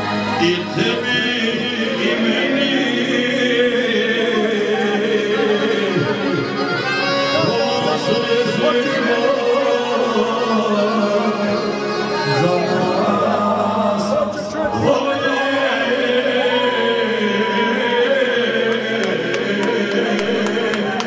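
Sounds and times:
folk band held instrument notes: 0:00.0 - 0:14.8
man singing into microphone: 0:00.2 - 0:21.0.

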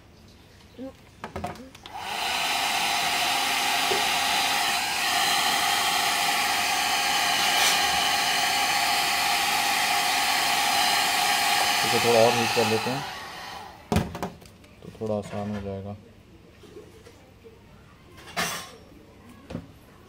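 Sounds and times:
hair dryer blowing: 0:01.9 - 0:13.9.

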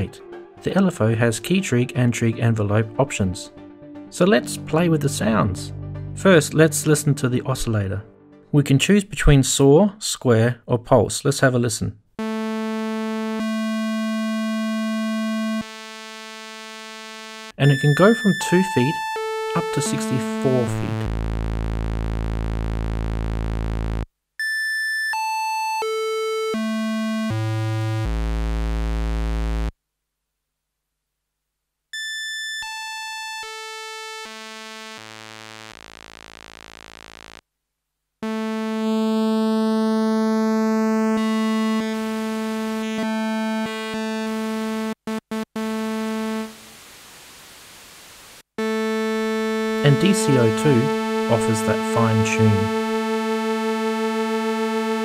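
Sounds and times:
synthesizer note jumping octaves: 0:12.2 - 0:24.1, 0:25.8 - 0:29.7, 0:32.0 - 0:37.4, 0:38.2 - 0:46.8, 0:48.6 - 0:55.0
quiet hiss: 0:46.5 - 0:48.4.

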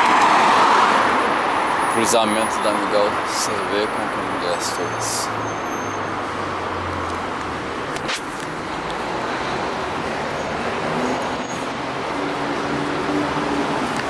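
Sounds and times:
cars driving past: 0:00.0 - 0:14.0.

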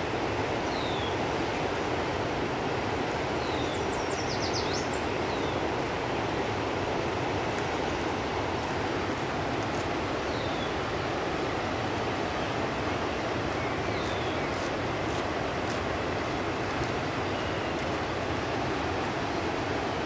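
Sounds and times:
fast-flowing river water: 0:00.0 - 0:20.0
high falling bird calls: 0:03.4 - 0:05.7, 0:13.5 - 0:14.7.

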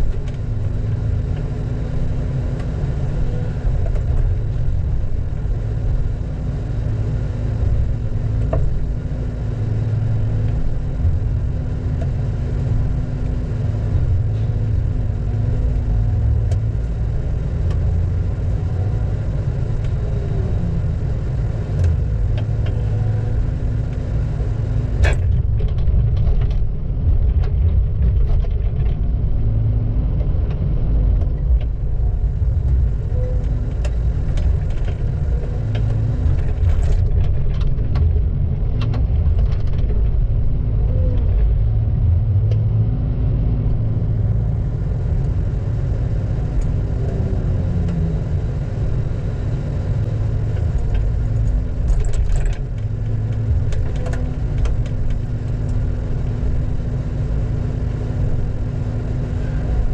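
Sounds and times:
diesel engine running: 0:00.0 - 0:59.9
light clicks and rattles: 0:50.6 - 0:55.8.

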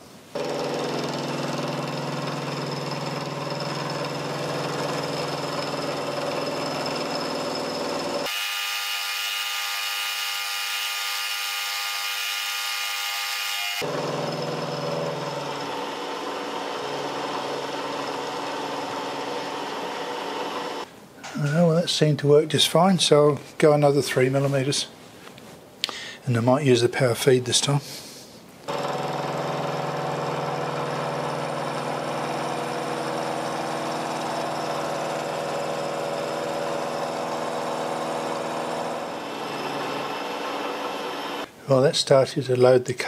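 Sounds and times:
end mill cutting metal: 0:00.4 - 0:20.9, 0:28.7 - 0:41.5
milling machine spindle whine: 0:00.4 - 0:20.9, 0:28.7 - 0:41.5.

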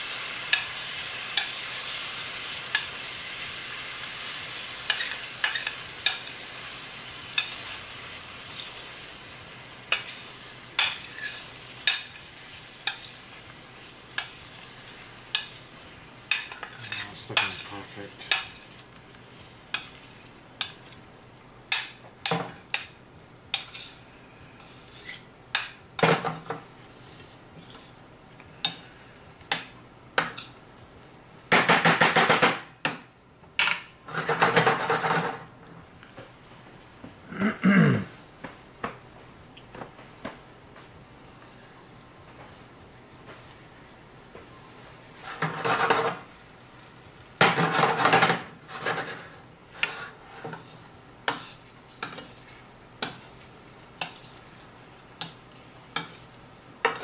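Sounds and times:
fruit sizzling in caramel: 0:00.0 - 0:31.7, 0:38.2 - 0:57.0
scraping and clatter against pan: 0:16.3 - 0:18.7, 0:34.1 - 0:35.4, 0:45.2 - 0:46.3, 0:47.4 - 0:53.4.

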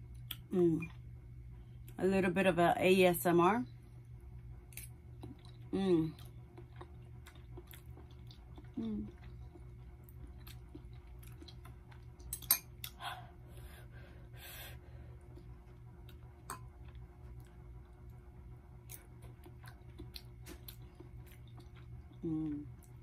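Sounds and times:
steady low hum: 0:00.0 - 0:23.0
soft chewing: 0:04.7 - 0:14.0, 0:14.8 - 0:23.0.

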